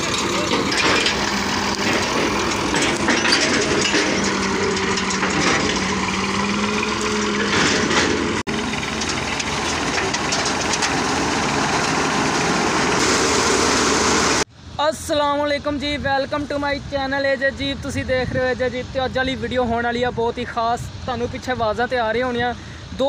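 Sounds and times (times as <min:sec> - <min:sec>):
tractor diesel engine running: 0:00.0 - 0:14.5.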